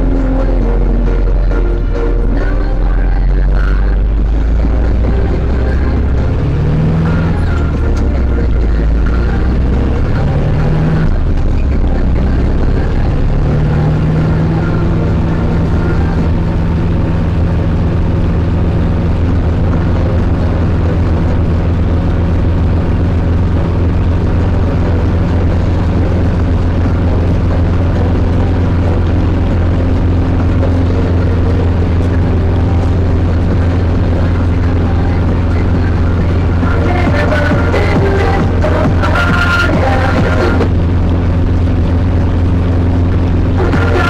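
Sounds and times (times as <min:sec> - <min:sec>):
tractor diesel engine running: 0:00.0 - 0:44.0.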